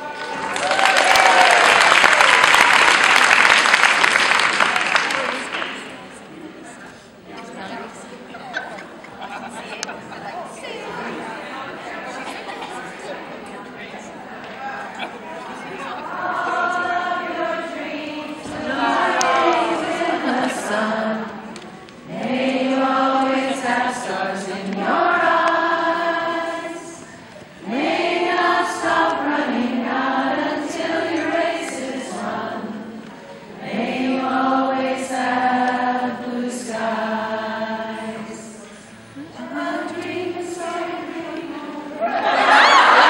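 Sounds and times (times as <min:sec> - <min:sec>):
women singing together: 0:15.9 - 0:43.0.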